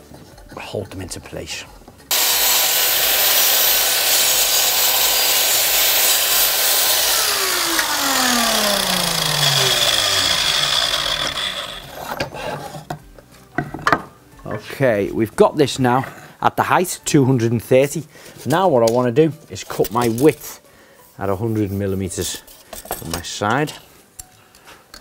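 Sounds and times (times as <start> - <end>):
saw blade winding down whine: 2.1 - 12.0
mitre saw cutting wood: 2.1 - 12.9.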